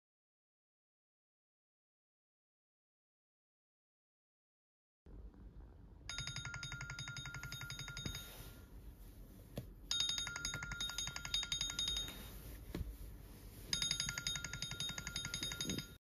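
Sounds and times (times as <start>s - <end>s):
smartphone ringing: 6.1s - 8.7s, 9.9s - 12.5s, 13.7s - 16.0s.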